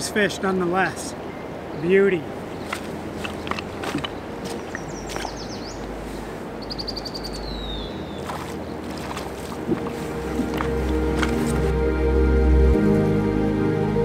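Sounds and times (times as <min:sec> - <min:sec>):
river water flowing: 0:00.0 - 0:13.2
songbird calling: 0:01.1 - 0:11.7.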